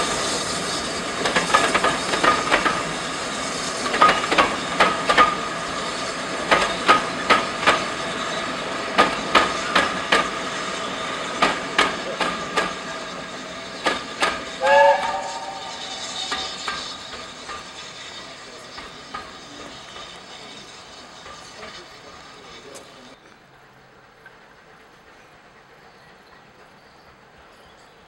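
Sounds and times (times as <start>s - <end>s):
wheels clicking over rail joints: 1.2s - 3.0s, 3.8s - 5.4s, 6.4s - 7.9s.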